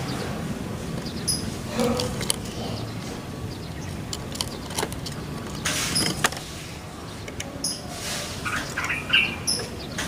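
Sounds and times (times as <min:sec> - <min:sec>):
dove rustling in cage: 0:04.2 - 0:06.8.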